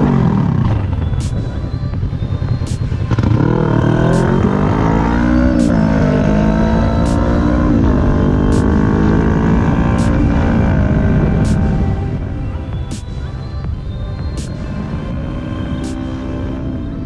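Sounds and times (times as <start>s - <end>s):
motorcycle engine accelerating: 0.0s - 17.0s
wind rumble on microphone: 0.0s - 17.0s.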